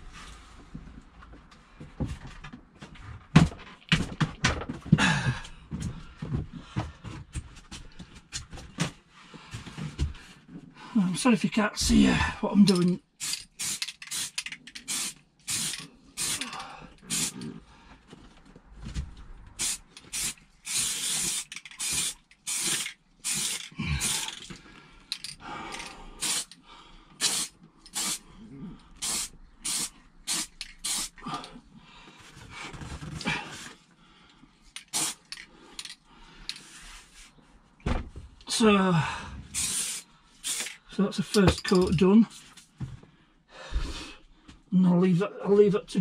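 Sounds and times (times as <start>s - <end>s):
aerosol spray hissing: 13.2s - 17.4s, 19.6s - 24.3s, 26.2s - 26.5s, 27.2s - 28.2s, 29.0s - 31.2s, 34.9s - 35.3s, 39.6s - 40.7s.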